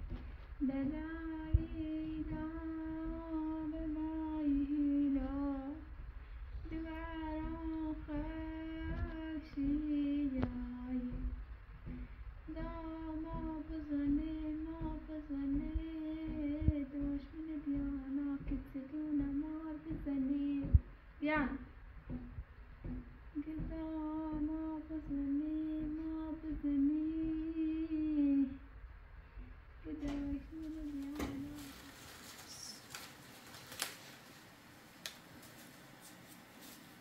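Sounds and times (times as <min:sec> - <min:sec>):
woman singing wordless lullaby: 0:00.6 - 0:05.9, 0:06.6 - 0:11.4, 0:12.5 - 0:21.7, 0:23.3 - 0:28.7, 0:29.8 - 0:33.0.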